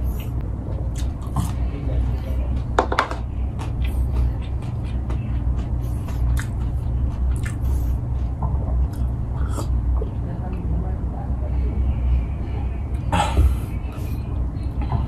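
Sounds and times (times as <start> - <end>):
person chewing: 0.0 - 10.2
low hum: 0.0 - 15.0
hand knocking wooden bowl: 2.8 - 3.3.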